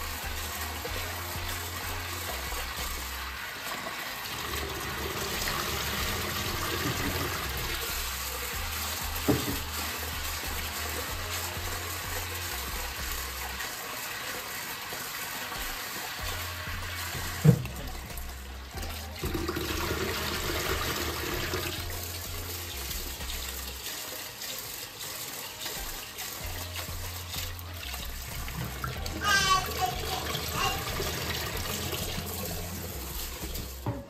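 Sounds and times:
tap water splashing into pot: 0:00.0 - 0:34.0.

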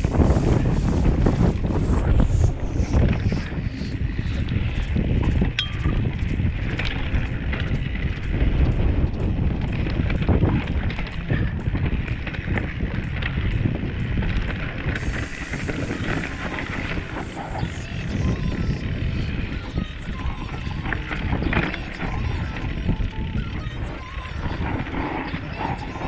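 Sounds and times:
mountain bike rattling: 0:00.0 - 0:26.0
wind rushing over microphone: 0:00.0 - 0:26.0
chain and suspension knocking: 0:05.4 - 0:07.8.

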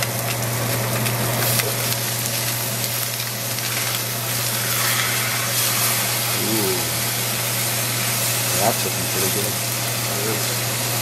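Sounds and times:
fish sizzling in a pan: 0:00.0 - 0:11.0
steady low hum: 0:00.1 - 0:11.0.

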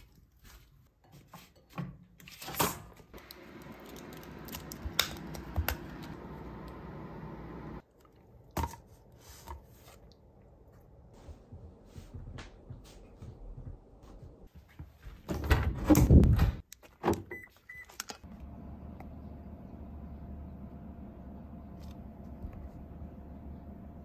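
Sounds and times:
steady hum: 0:03.3 - 0:07.8.

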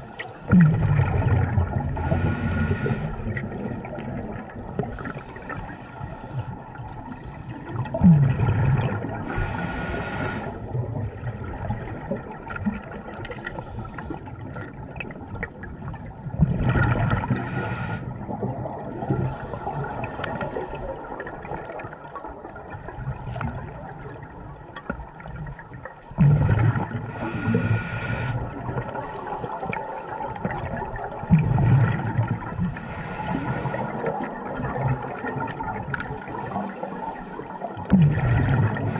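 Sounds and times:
diver exhaling bubbles: 0:00.0 - 0:04.9, 0:07.7 - 0:12.1, 0:26.2 - 0:29.0, 0:37.8 - 0:38.9
low underwater rumble: 0:00.0 - 0:38.9.

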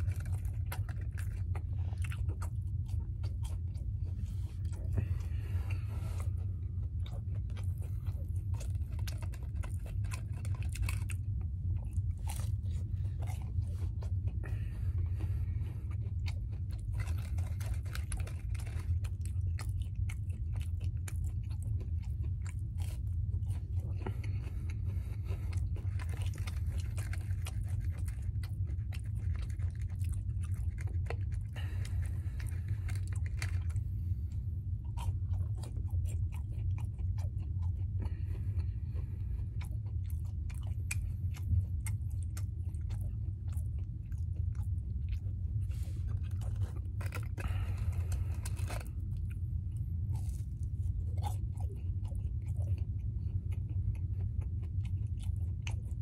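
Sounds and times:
person chewing: 0:00.0 - 0:56.0
steady low hum: 0:00.0 - 0:56.0.

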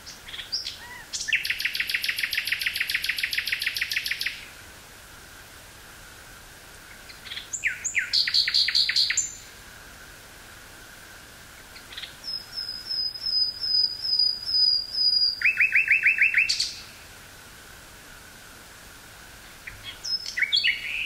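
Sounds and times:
nightingale singing: 0:00.0 - 0:04.6, 0:06.8 - 0:09.6, 0:11.5 - 0:17.0, 0:19.6 - 0:21.0.

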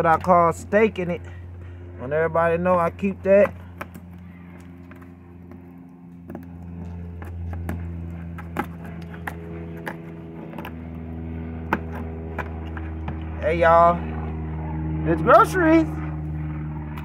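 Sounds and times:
low motor hum: 0:00.0 - 0:17.0.

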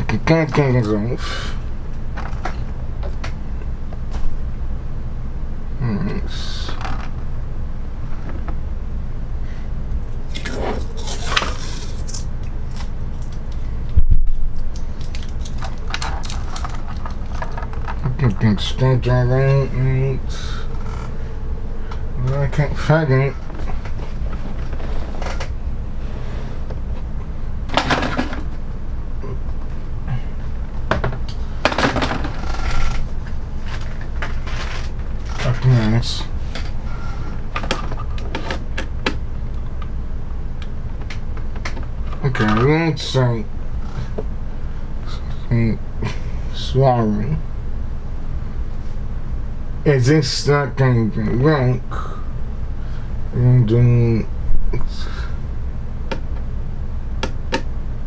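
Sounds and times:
steady low hum: 0:00.0 - 0:58.0
parts scraping and rustling: 0:10.2 - 0:13.7, 0:14.7 - 0:18.5, 0:21.9 - 0:27.1, 0:31.2 - 0:38.7
parts and packaging clattering: 0:14.8 - 0:18.0.

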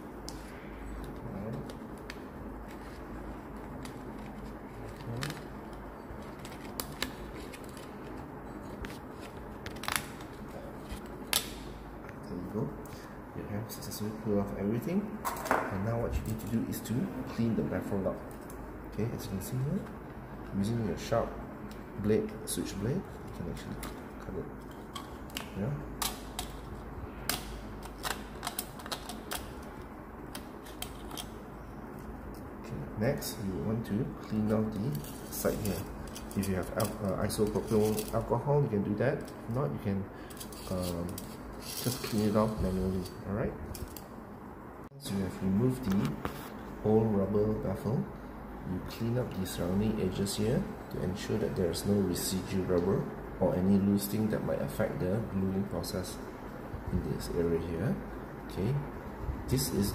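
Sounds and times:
steady background noise: 0:00.0 - 0:59.9.

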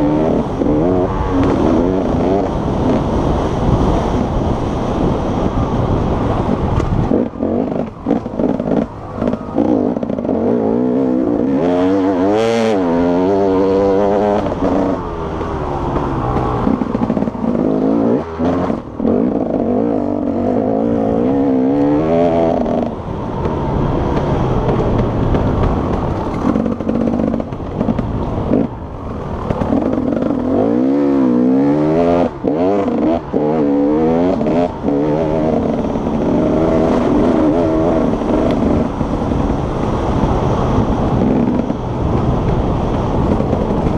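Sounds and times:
motorcycle engine revving: 0:00.0 - 0:43.9.

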